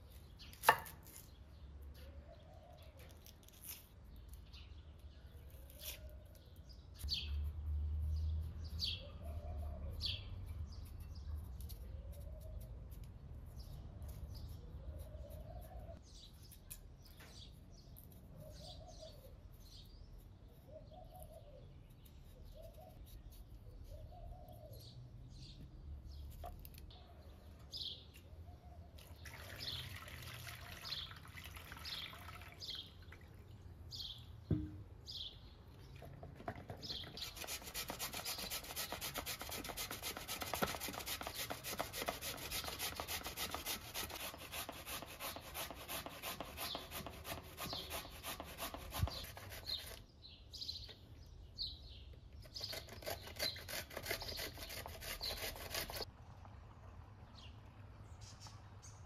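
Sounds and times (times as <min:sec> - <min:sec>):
birds chirping: 0:23.7 - 0:39.0, 0:46.5 - 0:56.0
water splashing into colander: 0:29.0 - 0:33.5.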